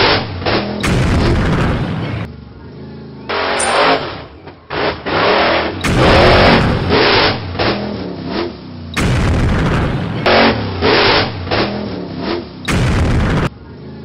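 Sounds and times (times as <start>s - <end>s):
cartoon truck engine revving: 0.0s - 2.3s, 3.0s - 14.0s
cartoon explosion booms: 0.8s - 2.3s, 5.8s - 7.4s, 9.0s - 10.3s, 12.7s - 13.5s.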